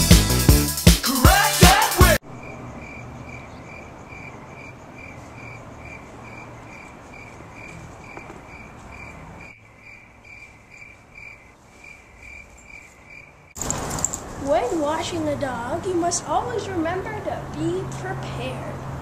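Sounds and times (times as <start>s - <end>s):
crickets chirping: 2.2s - 14.3s
faint outdoor background noise: 2.2s - 19.0s.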